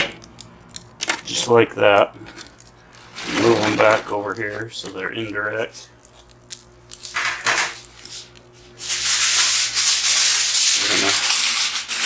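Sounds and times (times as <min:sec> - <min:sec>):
aluminium foil rustling: 0:02.4 - 0:12.0.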